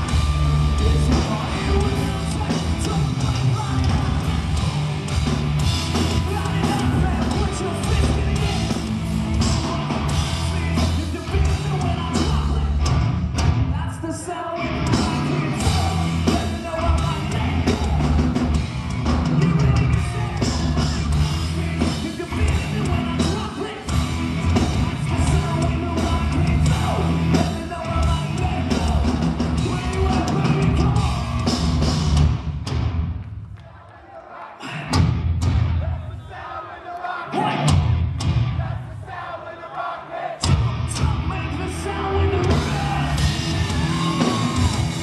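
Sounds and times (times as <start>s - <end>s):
lead vocal singing: 0.0s - 4.6s, 5.9s - 12.9s, 13.8s - 18.6s, 19.2s - 31.5s, 33.6s - 35.1s, 35.8s - 45.0s
rock band playing live: 0.0s - 33.2s, 34.7s - 36.0s, 37.3s - 38.8s, 40.4s - 45.0s
drums: 0.0s - 45.0s.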